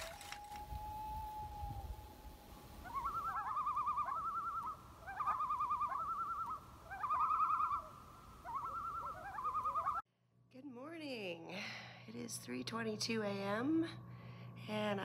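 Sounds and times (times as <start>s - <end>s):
loon tremolo call: 0.0s - 10.0s.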